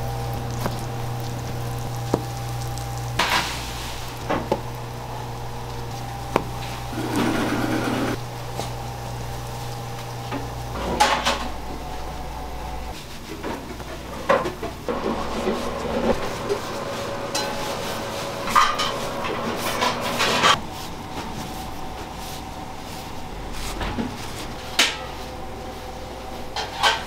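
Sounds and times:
low equipment hum: 0.0s - 27.0s
metal pans and utensils knocking: 18.5s - 20.6s.

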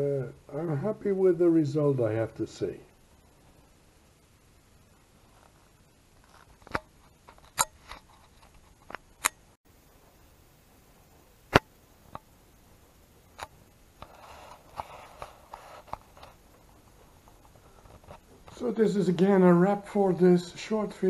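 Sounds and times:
soft rustling: 4.8s - 9.1s, 9.7s - 19.7s.

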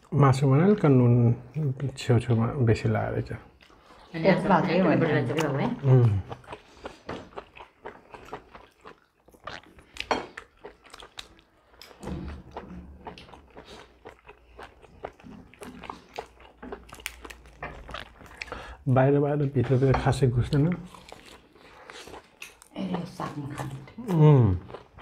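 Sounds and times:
person chewing and biting: 5.8s - 18.8s, 20.5s - 22.7s, 23.6s - 25.0s.

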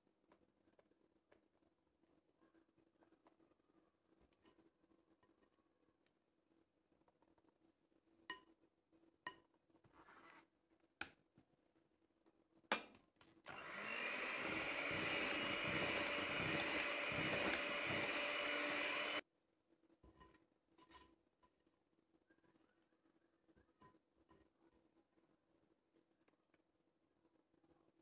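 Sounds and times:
electric hand mixer running: 13.5s - 19.2s.

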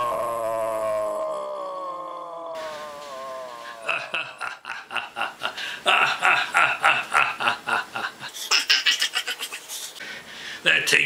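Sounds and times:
man laughing: 3.6s - 9.7s.

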